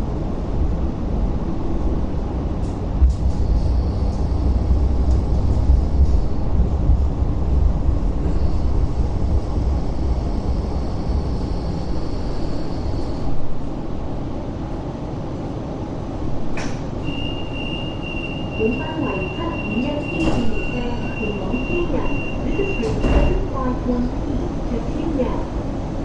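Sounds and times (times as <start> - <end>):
light rail vehicle rumbling: 0.0 - 26.0
high brake whine: 17.0 - 22.7
steady high beep: 17.0 - 23.4.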